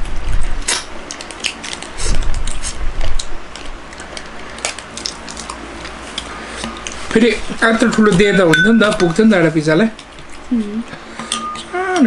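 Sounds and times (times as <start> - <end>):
chewing: 0.2 - 7.1, 9.9 - 12.0
food packet crinkling: 0.6 - 7.1.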